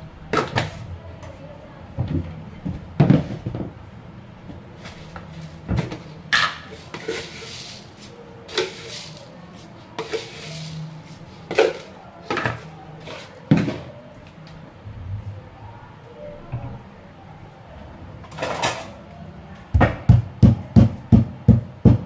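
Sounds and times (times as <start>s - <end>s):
plastic containers and dishes knocking: 2.0s - 3.7s, 19.8s - 22.0s.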